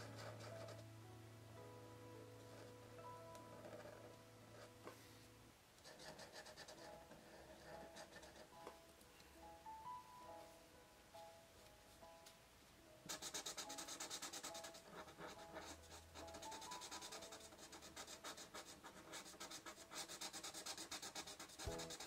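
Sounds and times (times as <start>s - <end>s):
soft background music: 0.0s - 22.0s
marker scratching on paper: 5.8s - 8.5s, 13.1s - 22.0s.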